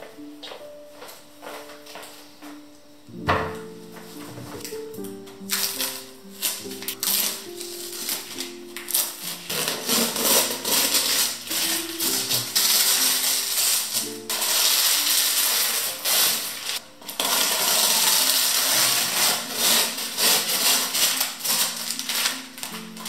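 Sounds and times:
soft piano music: 0.0 - 23.0
tape tearing off wood: 4.6 - 23.0.

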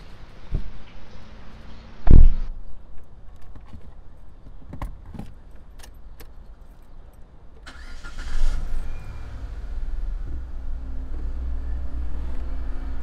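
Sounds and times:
car door thudding shut: 2.0 - 2.5
car engine starting and rumbling: 7.6 - 13.0.

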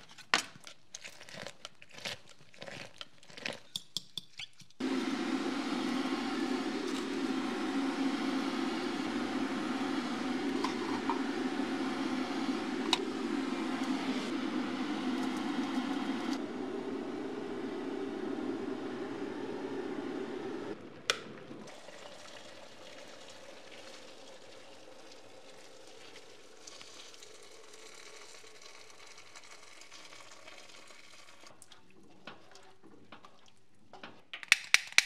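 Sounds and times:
low hum: 4.8 - 21.7
kettle heating water hiss: 4.8 - 31.7.

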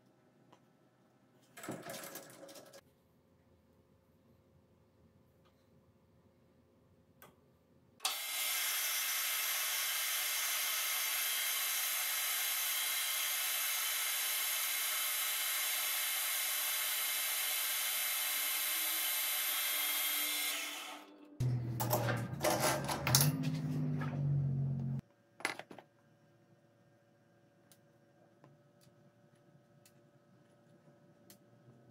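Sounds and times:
lathe cutting hiss: 8.1 - 21.0
machine hum with clatter: 21.0 - 25.9.

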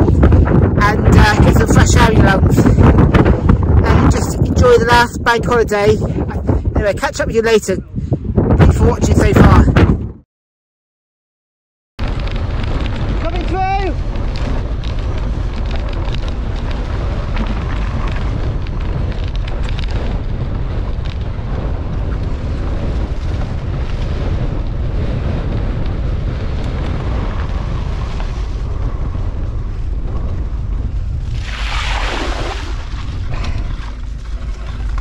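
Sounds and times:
bike tyre noise: 0.0 - 4.5, 12.0 - 35.0
wind buffeting microphone: 0.0 - 10.2, 12.0 - 35.0
bike clicks and rattles: 12.0 - 30.9, 33.0 - 35.0.

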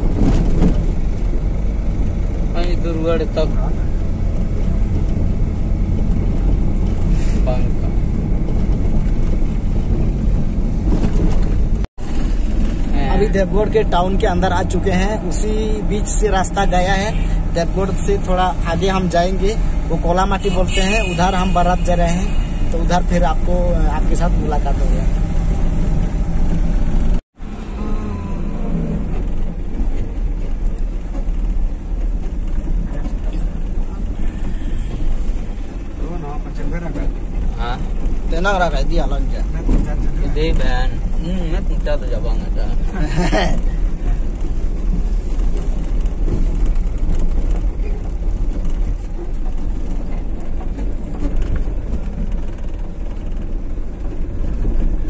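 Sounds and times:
road noise inside vehicle cabin: 0.0 - 55.0
vehicle engine rumble: 0.0 - 55.0.

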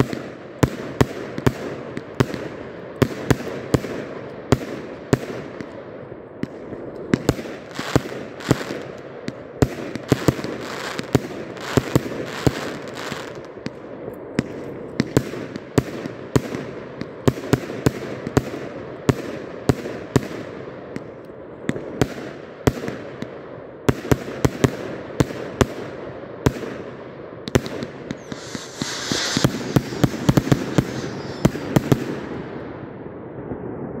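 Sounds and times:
firework shots banging: 27.6 - 32.7
firework stars crackling: 27.6 - 33.3
hissing crackle: 28.1 - 32.8.

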